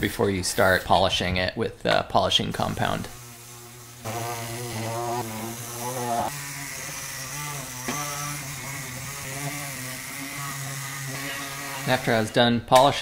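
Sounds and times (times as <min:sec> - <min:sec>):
rotary tool motor whine: 0:02.7 - 0:12.4.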